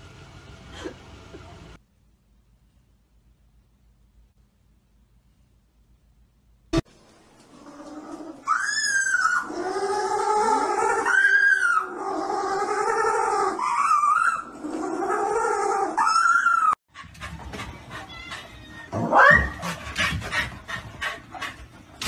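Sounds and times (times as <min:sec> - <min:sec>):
puppy howling and whining: 0:07.9 - 0:16.8, 0:17.9 - 0:19.7.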